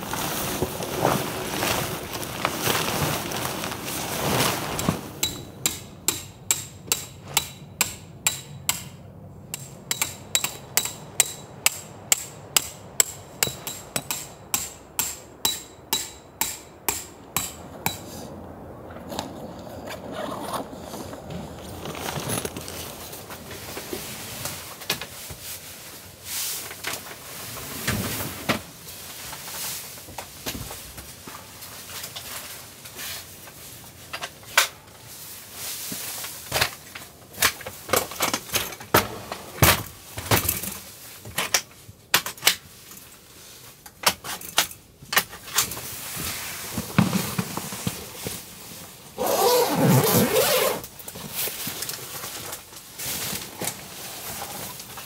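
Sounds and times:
fabric rustling: 0.0s - 5.2s, 49.2s - 54.8s
scraping rustle: 0.0s - 5.2s, 19.0s - 41.5s, 45.4s - 55.0s
plastic crates clattering: 0.0s - 5.5s.

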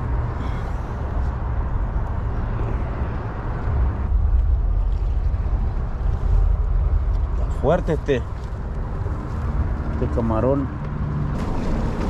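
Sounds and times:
wind buffeting microphone: 1.0s - 9.9s.

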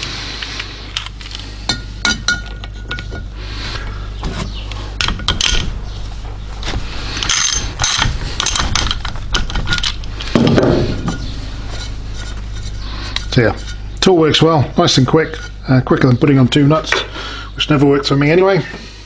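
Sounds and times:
steel tools clinking: 7.2s - 10.0s.

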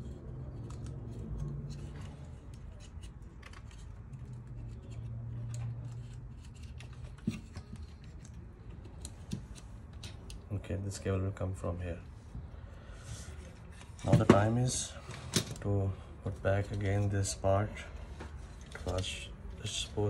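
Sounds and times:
plastic and metal parts clicking: 0.6s - 10.4s.

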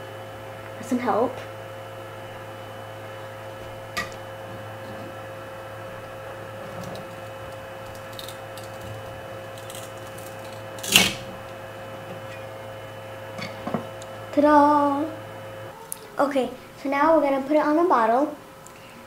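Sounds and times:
three d printer humming: 0.0s - 17.5s
plastic part cracking free: 7.0s - 11.2s.

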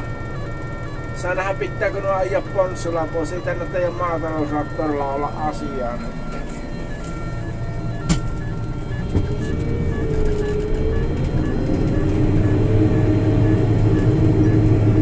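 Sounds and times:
harvester diesel engine: 0.0s - 15.0s
whine bending in pitch: 0.0s - 15.0s.

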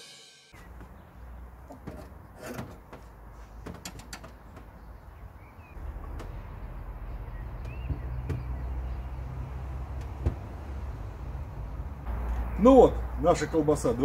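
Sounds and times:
knocks and clicks on metal rails: 1.6s - 9.0s, 9.7s - 10.6s
bird chirping: 4.3s - 10.2s
low outdoor rumble: 4.4s - 14.0s.

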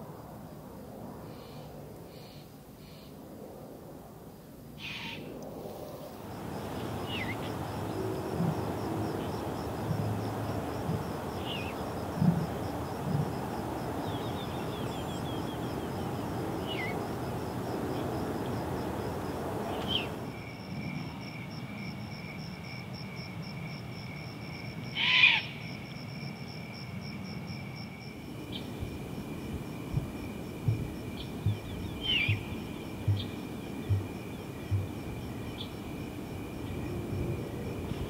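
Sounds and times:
owl calls: 4.8s - 5.3s, 25.0s - 25.5s, 32.0s - 32.5s.

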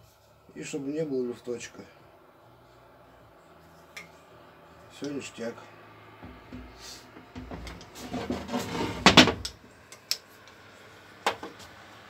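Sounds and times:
metal parts rubbing and rumbling: 6.2s - 9.6s.

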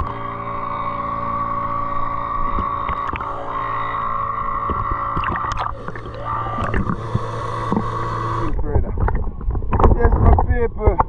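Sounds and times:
boat motor droning: 0.0s - 11.0s.

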